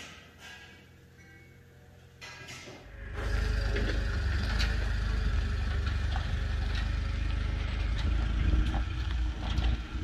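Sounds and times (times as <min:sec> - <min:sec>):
pickup truck engine idling: 0:02.9 - 0:10.0.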